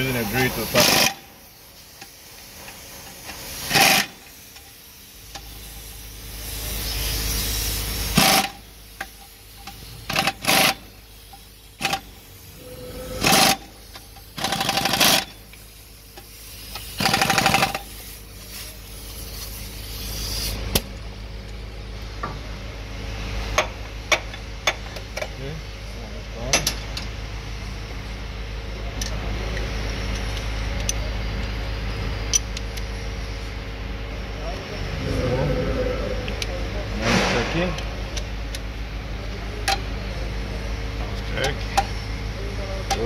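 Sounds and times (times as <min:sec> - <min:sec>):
low hum: 0:12.4 - 0:13.8, 0:34.1 - 0:38.5.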